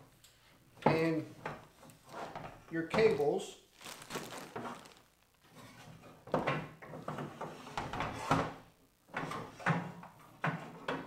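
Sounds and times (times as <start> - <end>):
plastic wrapping rustling: 1.7 - 5.6.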